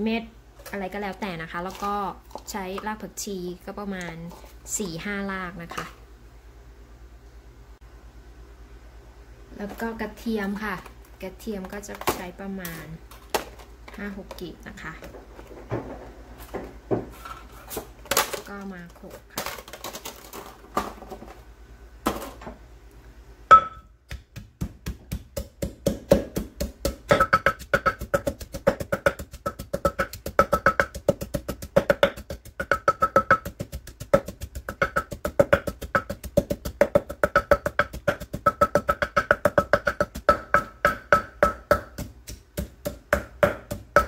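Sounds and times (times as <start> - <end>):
pestle pounding in clay mortar: 23.5 - 44.0.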